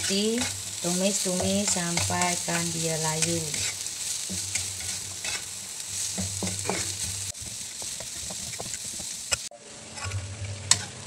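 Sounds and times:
spatula scraping wok: 0:00.0 - 0:11.0
vegetables sizzling in hot oil: 0:00.0 - 0:11.0.

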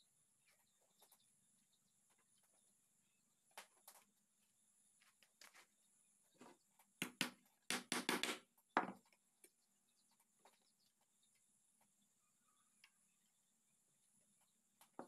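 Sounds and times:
hammer knocking wood: 0:07.0 - 0:09.0.

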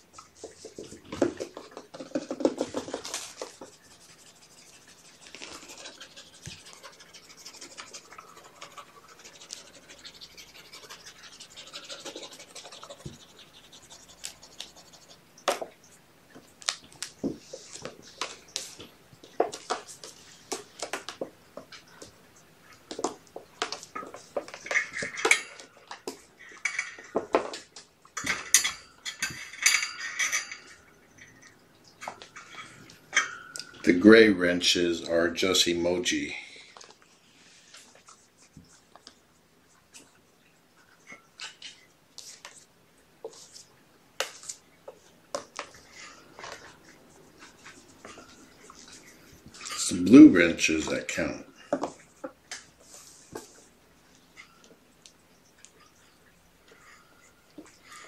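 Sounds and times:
kittens scratching on plastic tray: 0:00.3 - 0:15.7.

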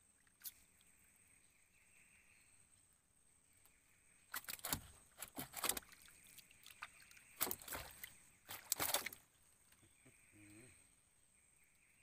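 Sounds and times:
water splashing and sloshing: 0:04.2 - 0:09.8.

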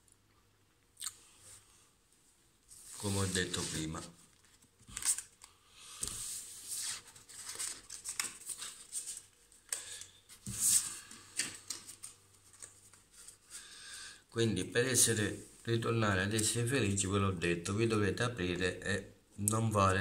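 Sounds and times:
cards being shuffled: 0:02.9 - 0:13.4.

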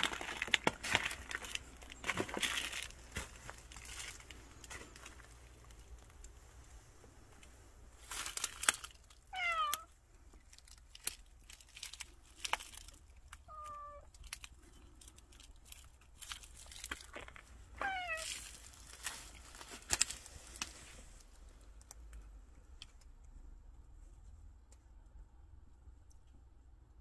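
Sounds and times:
twigs and leaves crackling: 0:00.0 - 0:23.0
cat meowing: 0:09.3 - 0:09.9, 0:13.5 - 0:14.1, 0:17.8 - 0:18.3.

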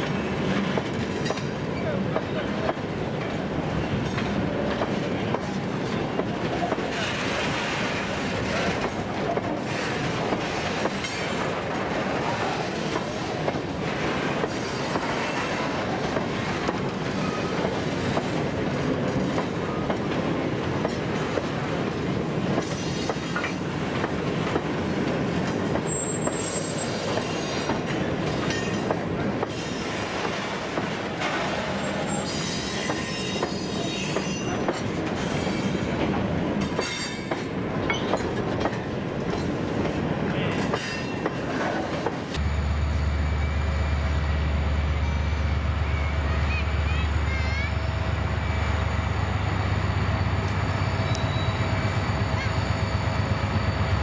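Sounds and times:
clickety-clack over rail joints: 0:00.0 - 0:42.4
train wheels rumbling on rail: 0:00.0 - 0:54.0
high wheel squeals: 0:25.9 - 0:27.7, 0:31.7 - 0:34.6, 0:50.2 - 0:54.0.

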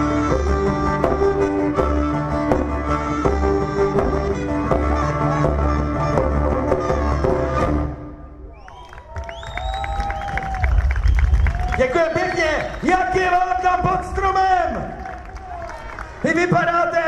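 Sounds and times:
plucked string instrument: 0:00.0 - 0:08.2
wooden wind instrument melody: 0:00.0 - 0:11.6.

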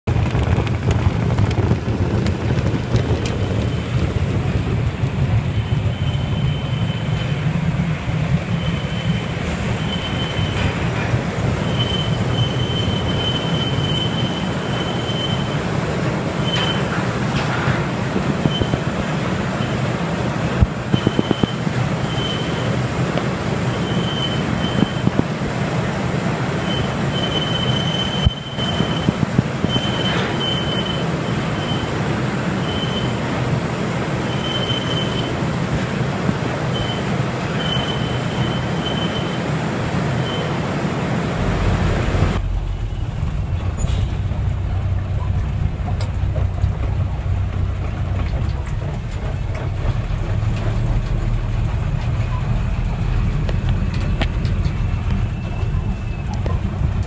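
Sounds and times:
conveyor rumble and rattle: 0:00.0 - 0:57.0
high mechanical squeal: 0:05.5 - 0:07.5, 0:08.5 - 0:11.0, 0:11.6 - 0:15.7, 0:16.4 - 0:17.0, 0:18.4 - 0:18.8, 0:20.9 - 0:22.7, 0:23.7 - 0:25.2, 0:26.6 - 0:32.0, 0:32.6 - 0:33.2, 0:34.3 - 0:35.4, 0:36.7 - 0:39.5, 0:40.2 - 0:40.6, 0:54.8 - 0:56.7.

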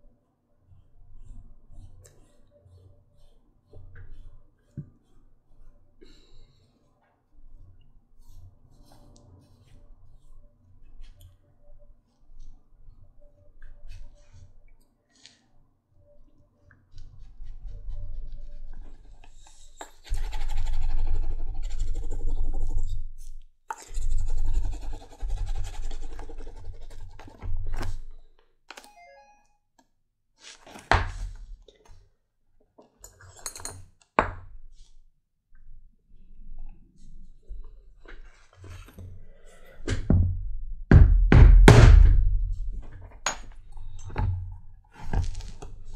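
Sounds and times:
sharp knocks: 0:40.9 - 0:42.9.

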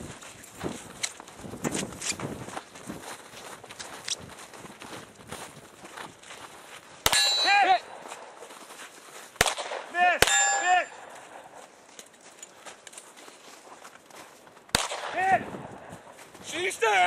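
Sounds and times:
pistol shots: 0:07.0 - 0:08.0, 0:09.4 - 0:11.6, 0:14.7 - 0:15.5
steel target clanging: 0:07.1 - 0:07.9, 0:10.2 - 0:11.1.

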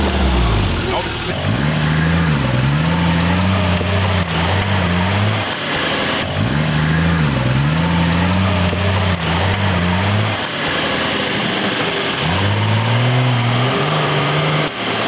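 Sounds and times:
off-road engines running: 0:00.0 - 0:15.0.

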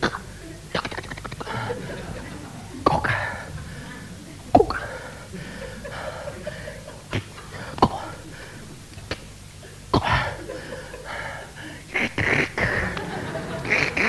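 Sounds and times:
man making mouth smacks and clicks: 0:00.0 - 0:01.5, 0:04.5 - 0:04.8, 0:07.1 - 0:08.0, 0:08.9 - 0:09.4
faint vocal noises: 0:00.0 - 0:14.0.

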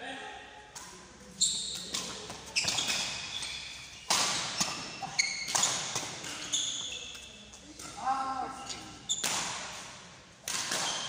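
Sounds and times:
badminton racket hitting shuttlecock: 0:00.8 - 0:11.0
shoes squeaking on wooden floor: 0:01.4 - 0:07.6.

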